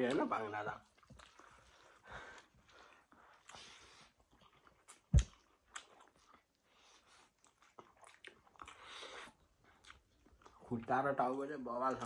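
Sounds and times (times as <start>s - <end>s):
people chewing food: 0.0s - 12.0s.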